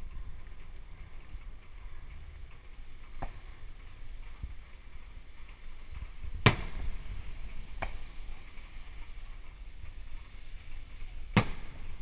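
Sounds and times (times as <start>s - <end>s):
firework shells bursting: 5.6s - 12.0s.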